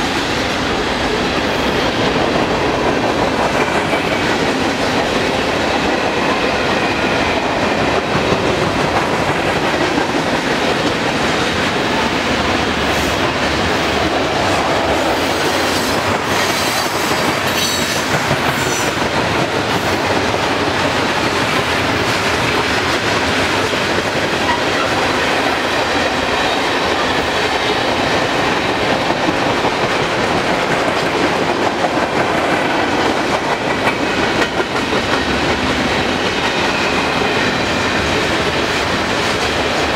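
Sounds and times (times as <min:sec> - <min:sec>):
steel wheels on rails: 0:00.0 - 0:39.9.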